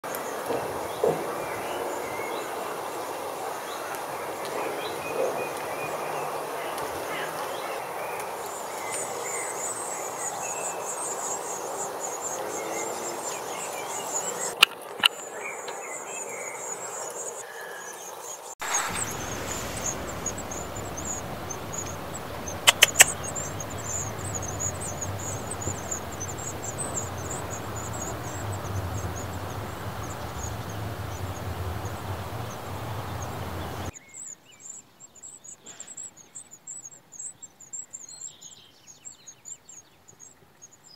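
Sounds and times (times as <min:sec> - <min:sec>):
nestlings chattering: 0:00.0 - 0:40.7
sharp clicks: 0:14.6 - 0:15.2, 0:18.7 - 0:24.8
steady background noise: 0:18.6 - 0:34.3.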